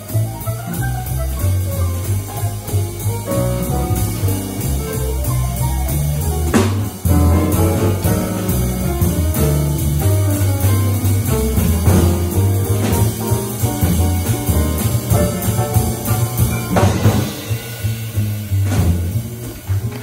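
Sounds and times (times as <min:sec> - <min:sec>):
double bass notes: 0:00.0 - 0:20.0
drums: 0:00.0 - 0:20.0
jazz quartet playing: 0:00.0 - 0:20.0.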